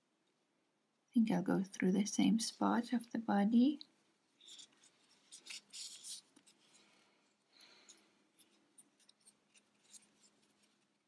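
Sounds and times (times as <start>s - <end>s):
yarn rustling through fabric: 2.4s - 11.0s.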